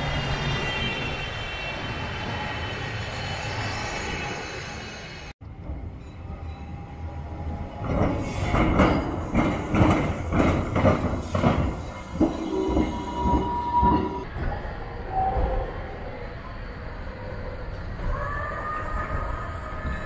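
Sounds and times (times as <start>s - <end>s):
tram wheels knocking on rails: 7.8s - 14.2s.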